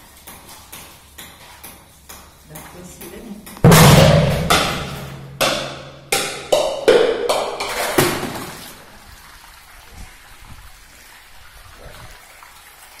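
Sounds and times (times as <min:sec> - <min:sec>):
running water splashing: 0:07.3 - 0:13.0.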